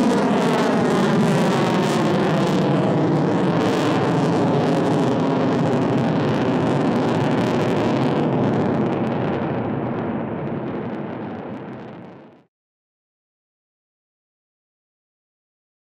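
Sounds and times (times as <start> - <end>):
jet engines roaring: 0.0 - 12.0.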